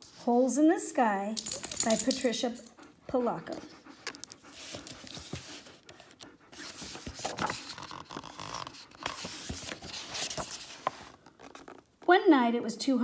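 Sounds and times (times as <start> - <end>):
book pages turning: 4.5 - 12.0.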